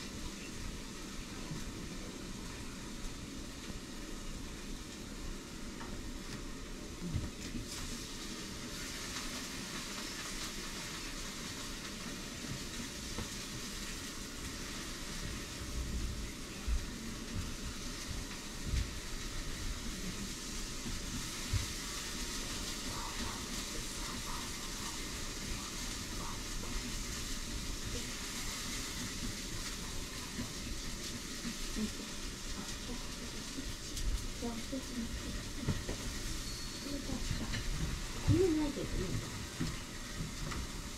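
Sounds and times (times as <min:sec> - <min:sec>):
background hiss: 0:00.0 - 0:40.9.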